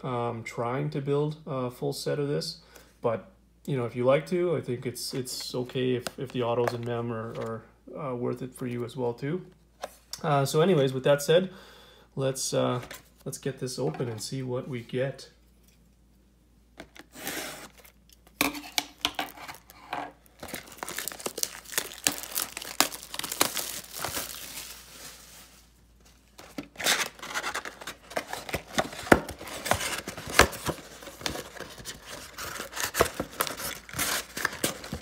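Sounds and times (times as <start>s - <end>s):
plastic shrink wrap crinkling: 19.1s - 35.0s.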